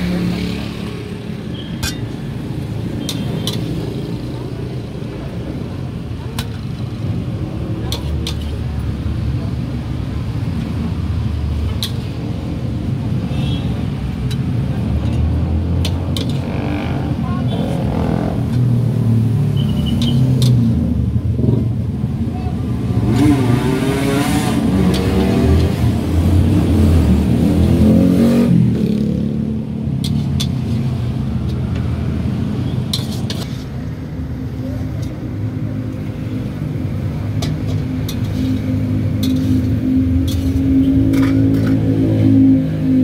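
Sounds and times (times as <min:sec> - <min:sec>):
low rumble of traffic: 0:00.0 - 0:43.0
vehicle engine revving: 0:23.0 - 0:29.4.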